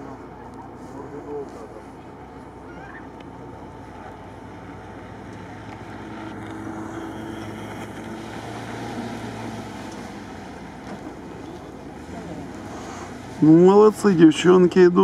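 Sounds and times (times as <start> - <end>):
off-road vehicle engine revving: 2.8 - 14.2.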